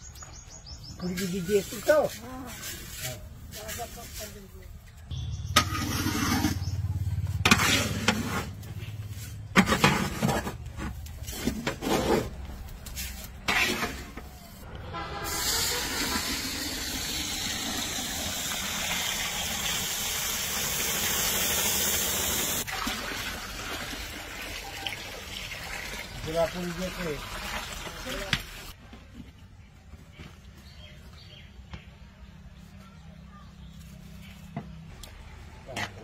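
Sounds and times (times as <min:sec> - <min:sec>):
metal spatula scraping wok: 0:05.2 - 0:15.7
water hissing on hot rice: 0:15.3 - 0:22.7
water pouring splash: 0:15.3 - 0:28.7.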